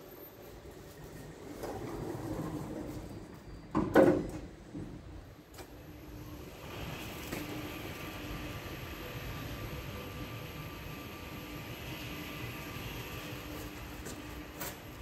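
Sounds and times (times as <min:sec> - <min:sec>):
lift motor humming and whining: 0:04.6 - 0:15.0.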